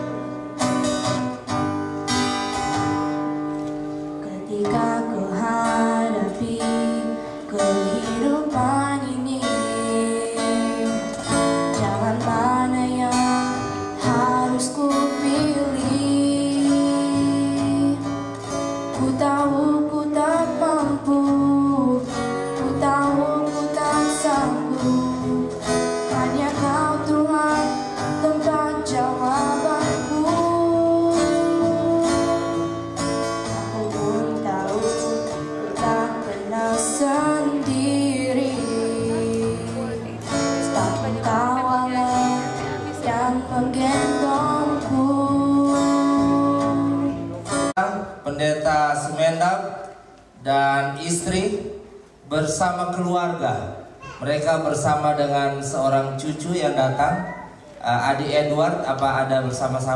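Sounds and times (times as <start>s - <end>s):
woman singing into microphone: 4.2s - 47.6s.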